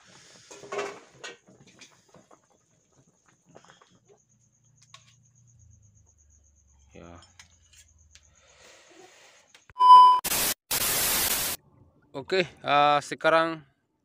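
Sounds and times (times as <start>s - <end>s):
short loud beep: 9.8s - 10.5s.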